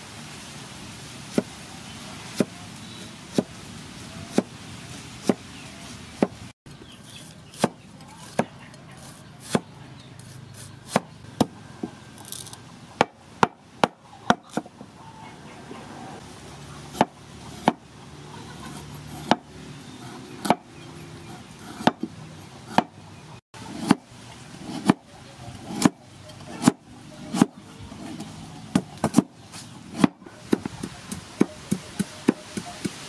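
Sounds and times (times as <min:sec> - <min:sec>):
knife chopping on wooden board: 0:03.3 - 0:03.5, 0:04.3 - 0:04.5, 0:05.2 - 0:05.5, 0:07.5 - 0:08.6, 0:09.4 - 0:09.7, 0:10.8 - 0:12.0, 0:16.9 - 0:17.8, 0:18.7 - 0:20.7, 0:21.6 - 0:22.1, 0:22.7 - 0:23.0, 0:23.7 - 0:24.0, 0:24.6 - 0:25.0, 0:25.6 - 0:33.0.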